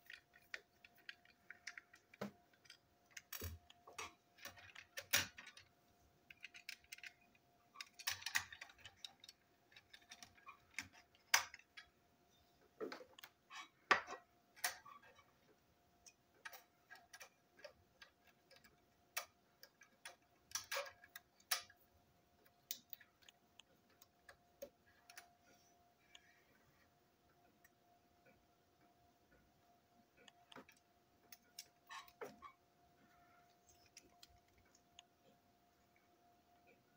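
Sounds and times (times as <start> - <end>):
toy train parts clicking: 0.0 - 12.0, 16.0 - 21.8
faint steady hum: 0.0 - 36.9.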